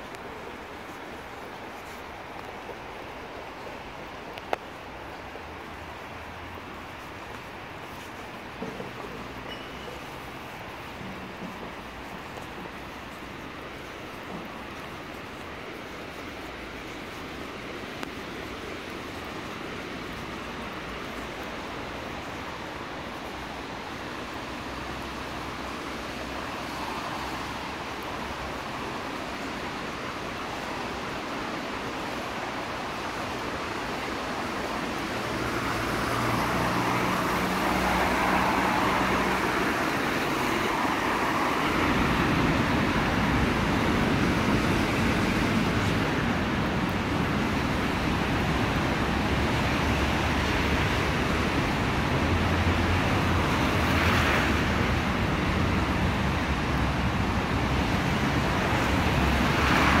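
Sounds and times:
tyres hissing on wet road: 0.0s - 60.0s.

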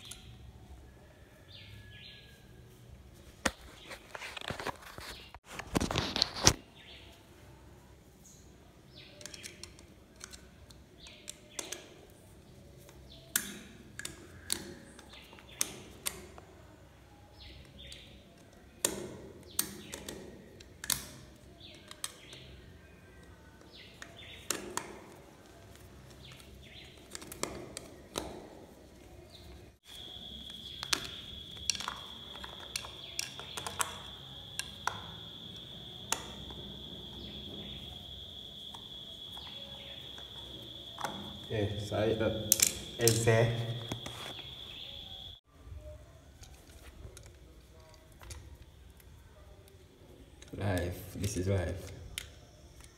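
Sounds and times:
cricket trill: 29.8s - 46.0s.

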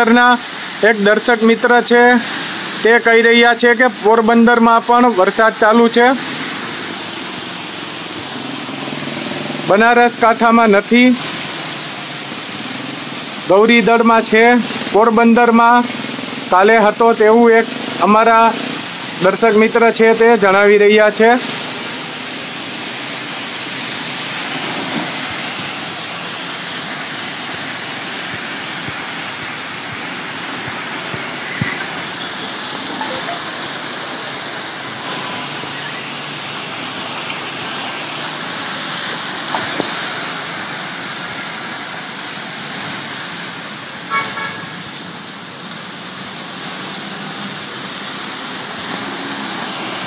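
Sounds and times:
heavy rain pouring: 0.0s - 50.0s
traffic passing through water: 0.0s - 50.0s
vehicle horn toot: 44.1s - 44.8s.

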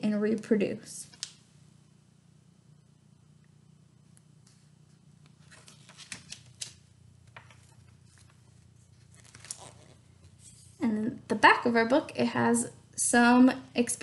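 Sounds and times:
low steady hum: 0.0s - 14.0s
book pages flipping: 4.4s - 10.8s.

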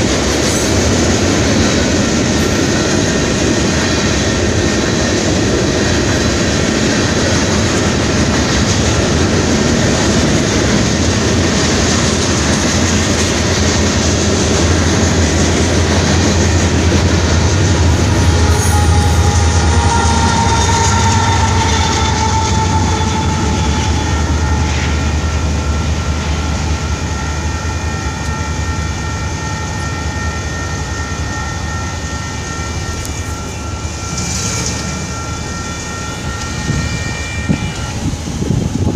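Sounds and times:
train wheels clattering on rails: 0.0s - 38.9s
wheel squeal: 18.0s - 38.6s.

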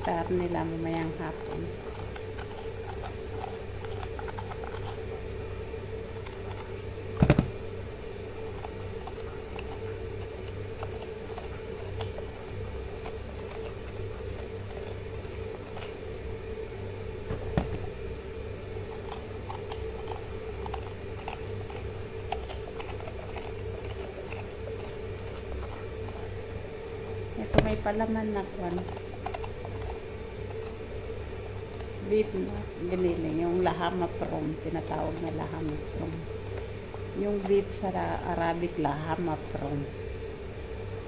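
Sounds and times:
scraping and small clicks: 0.0s - 5.3s, 8.4s - 16.0s, 18.9s - 26.4s, 28.6s - 30.8s
steady hum: 0.0s - 41.0s.

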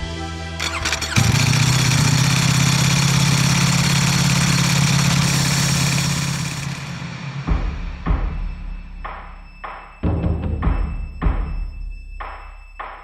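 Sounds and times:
motorcycle engine starting and idling: 0.6s - 7.6s.

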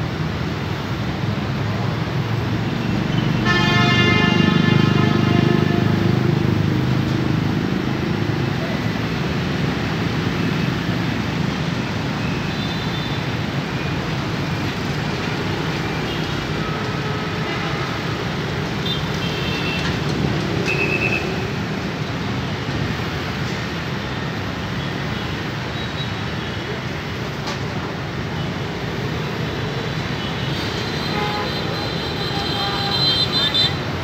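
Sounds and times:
cars moving slowly: 4.7s - 34.0s.

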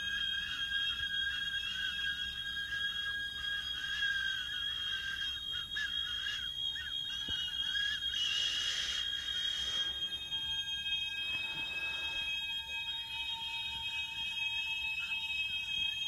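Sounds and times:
piercing high electronic tones: 0.0s - 16.0s
wavering tone: 0.0s - 16.0s
hiss of noise: 8.2s - 10.0s
low steady tone: 8.4s - 14.4s.

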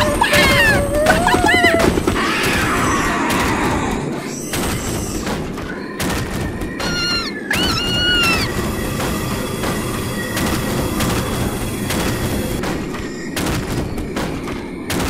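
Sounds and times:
high squealing cry: 0.0s - 3.3s, 6.8s - 8.6s
cartoon thuds and booms: 0.0s - 15.0s.

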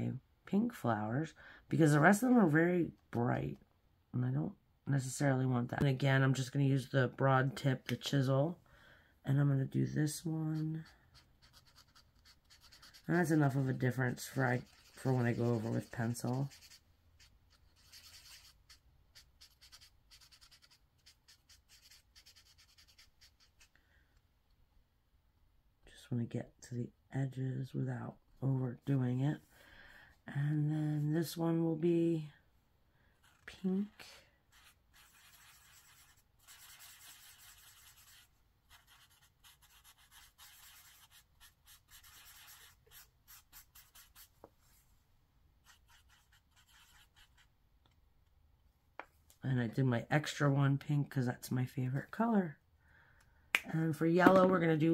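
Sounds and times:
marker scratching on paper: 10.5s - 23.7s, 33.2s - 33.6s, 34.4s - 44.3s, 45.6s - 47.5s.

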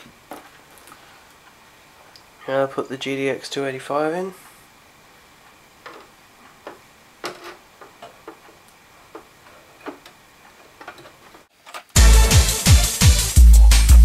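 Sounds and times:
light clicks and knocks: 5.8s - 11.9s.

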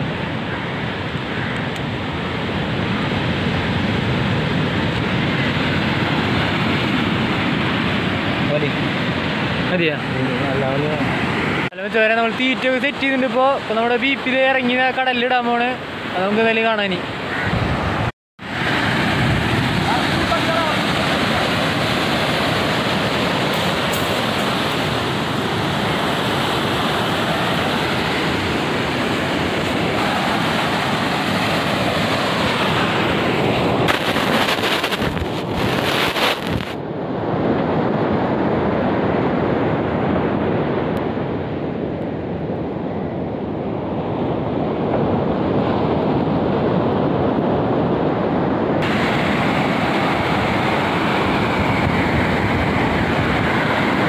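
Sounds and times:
wind buffeting microphone: 17.3s - 54.0s
surf breaking on beach: 18.4s - 40.9s, 48.8s - 54.0s.

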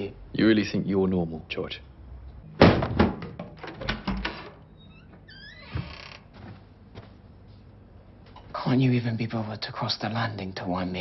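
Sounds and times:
thump against wooden door: 2.6s - 4.2s
knocks and rattles: 2.6s - 4.6s
squeaky creak with scrape: 4.3s - 6.3s.

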